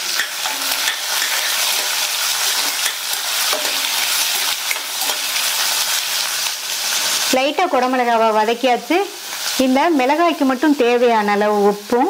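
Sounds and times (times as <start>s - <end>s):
spatula scraping pan: 0.0s - 5.9s
vegetables sizzling in hot oil: 0.0s - 12.0s.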